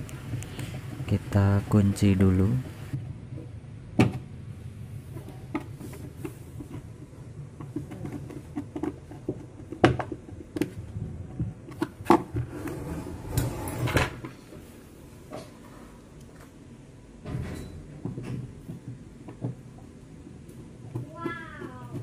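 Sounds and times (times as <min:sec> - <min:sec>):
plastic knocks: 0:07.6 - 0:10.7.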